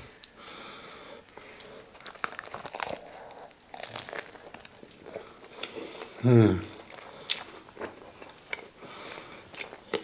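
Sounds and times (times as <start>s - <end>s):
person chewing: 0.2s - 10.0s
crunchy bread roll bite: 1.3s - 8.3s.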